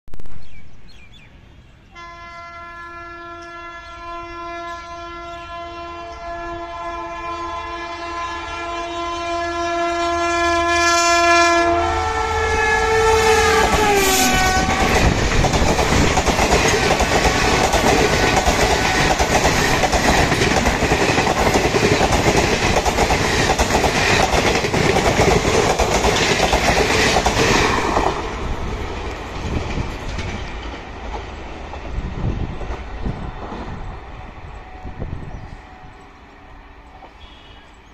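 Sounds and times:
train horn: 1.9 - 15.3, 34.4 - 37.8
train wheels on rails: 12.5 - 37.9.

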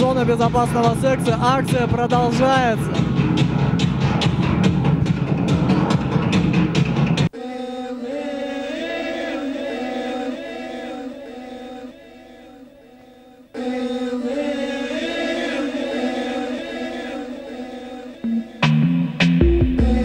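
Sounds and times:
drum-heavy music track: 0.0 - 7.3, 18.2 - 20.0
voices chanting long notes: 7.3 - 19.2.

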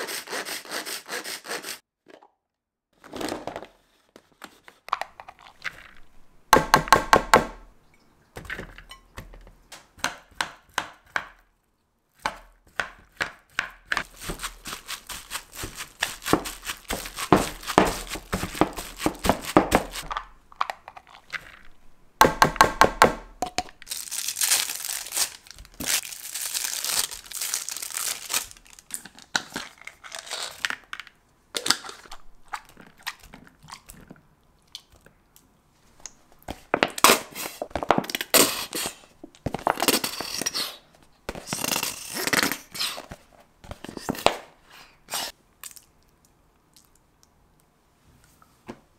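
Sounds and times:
rustling: 14.0 - 20.4.

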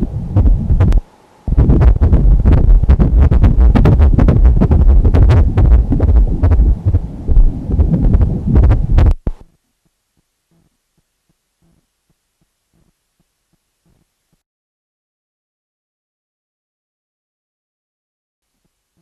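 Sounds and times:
fetal heartbeat doppler whooshing: 0.0 - 9.5.

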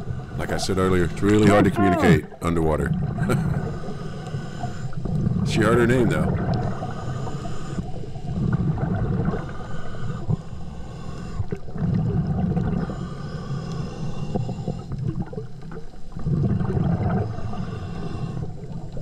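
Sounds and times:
underwater bubbles gurgling: 0.0 - 10.5, 11.2 - 19.0.

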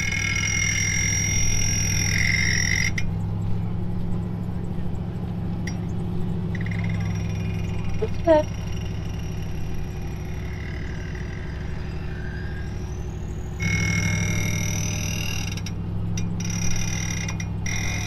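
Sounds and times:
steady high whine: 0.0 - 18.0
truck engines under load: 0.0 - 18.0.

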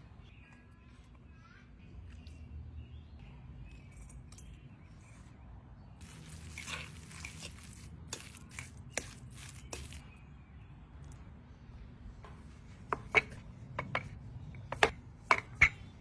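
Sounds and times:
wet squishing stirring strokes: 6.0 - 10.2.

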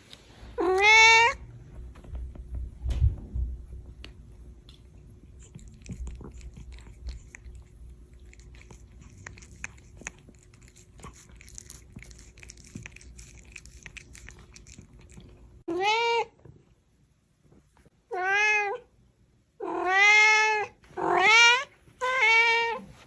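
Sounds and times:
cat meowing: 0.6 - 1.4.

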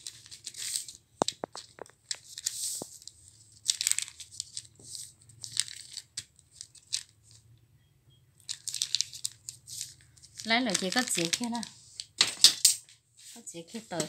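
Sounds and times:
cloth rustling and crinkling: 0.0 - 7.4, 8.5 - 12.2.

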